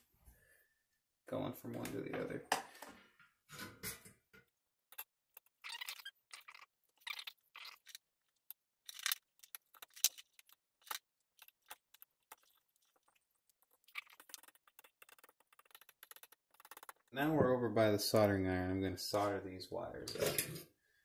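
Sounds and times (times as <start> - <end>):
small parts clicking and tapping: 8.4 - 17.2.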